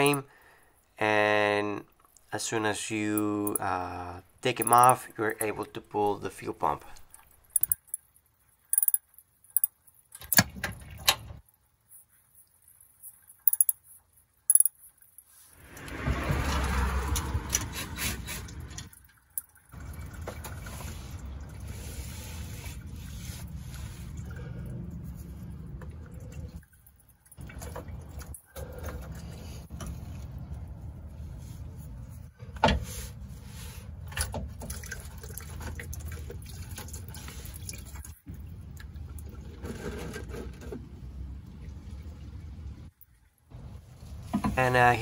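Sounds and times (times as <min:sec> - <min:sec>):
socket clicking on nuts: 0:07.6 - 0:08.0, 0:08.7 - 0:09.0, 0:13.5 - 0:13.8, 0:14.5 - 0:14.7.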